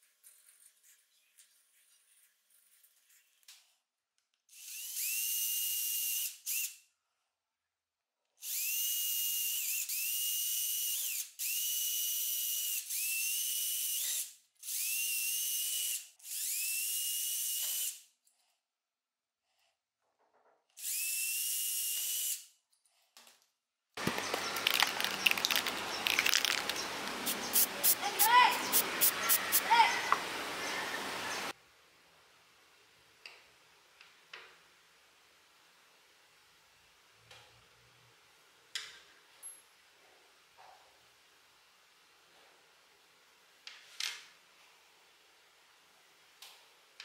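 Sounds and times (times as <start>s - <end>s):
power drill whining: 4.5s - 6.8s, 8.4s - 18.1s, 20.8s - 22.5s
rough scraping with clicks: 24.0s - 27.7s.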